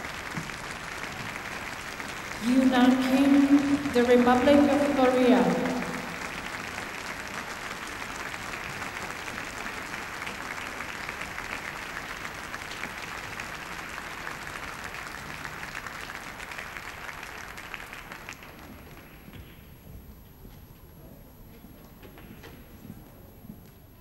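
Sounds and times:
crowd applauding: 0.0s - 19.6s.

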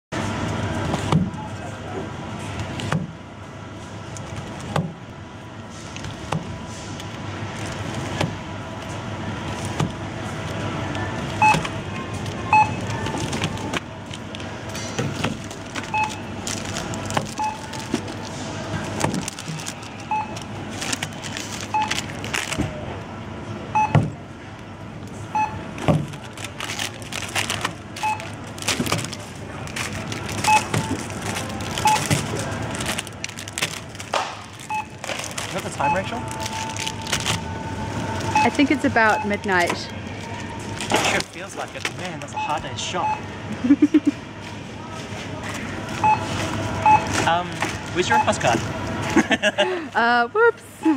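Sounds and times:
store background noise: 0.1s - 50.9s
barcode scanner beeps: 11.4s - 11.7s, 12.5s - 13.0s, 15.9s - 16.4s, 17.3s - 17.8s, 20.1s - 20.4s, 21.7s - 22.0s, 23.8s - 24.0s, 30.5s - 31.0s, 31.8s - 32.1s, 34.7s - 35.0s, 35.8s - 39.9s, 42.3s - 43.3s, 46.0s - 47.2s, 48.0s - 48.4s.

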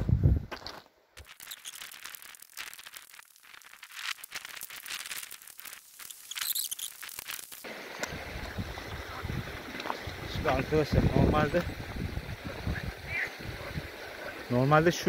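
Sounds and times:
footsteps crunching on pebbles: 0.5s - 7.7s.

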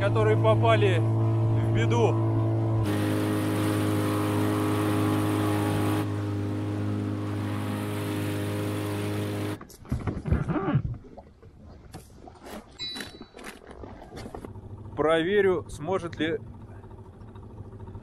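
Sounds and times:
outboard motor running: 0.0s - 9.6s, 13.2s - 18.0s
wind: 0.0s - 18.0s
water rushing: 2.8s - 9.6s.

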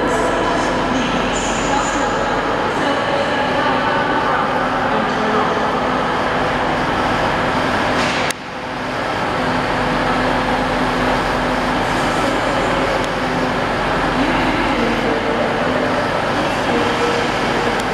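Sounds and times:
diesel train engines running: 0.0s - 17.9s.

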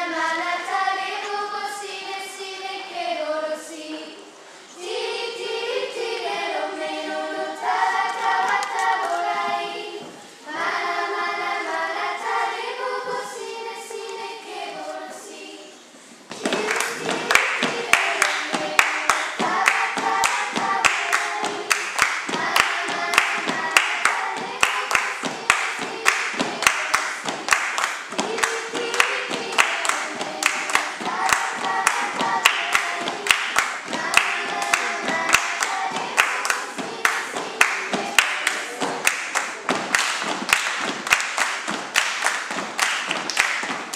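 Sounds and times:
girls singing unaccompanied: 0.0s - 43.9s
body percussion claps and slaps: 16.3s - 43.9s.

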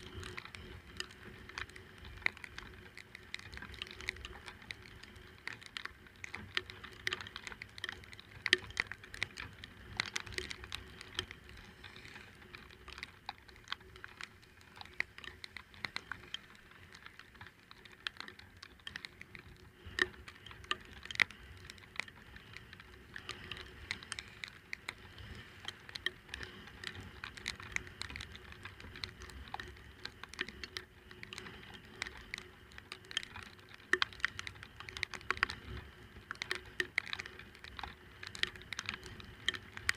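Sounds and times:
raindrops ticking on camera: 0.0s - 39.9s.

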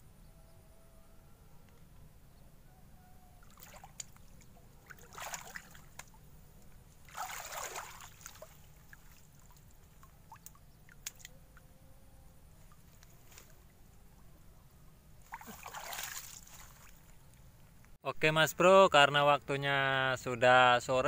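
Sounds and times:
shallow water sloshing and splashing: 3.4s - 11.3s, 15.2s - 17.3s.

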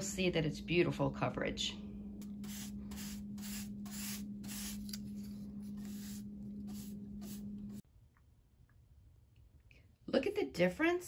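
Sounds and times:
steady low hum: 0.0s - 10.1s
paintbrush swishing: 2.4s - 7.8s.

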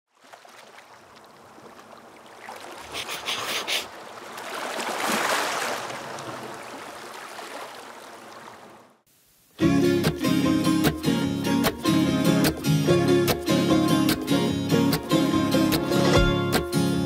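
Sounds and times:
small sea waves breaking on beach: 0.1s - 9.0s.

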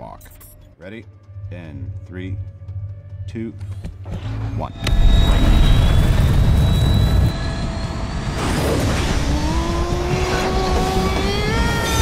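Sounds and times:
jet-like thruster rush: 4.4s - 12.0s
rising multi-tone whine: 4.4s - 12.0s.

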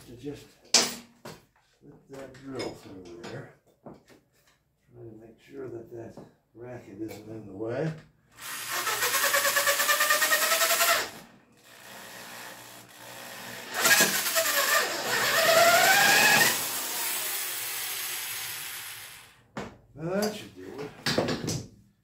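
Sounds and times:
electric drill running: 8.4s - 19.4s.

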